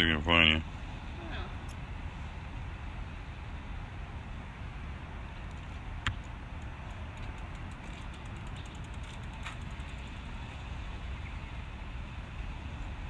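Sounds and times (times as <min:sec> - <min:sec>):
outdoor rumble and hiss: 0:00.0 - 0:13.0.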